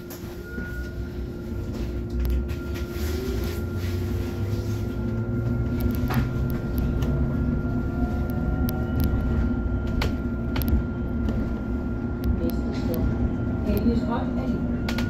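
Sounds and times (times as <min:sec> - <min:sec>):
bus engine droning: 0:00.0 - 0:15.0
faint rising whine: 0:00.2 - 0:13.8
interior rattles and clicks: 0:01.8 - 0:02.8, 0:05.1 - 0:15.0.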